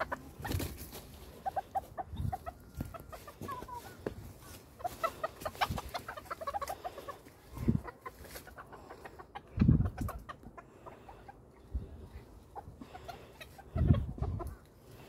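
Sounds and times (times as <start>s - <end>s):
chickens clucking: 0.0s - 15.0s.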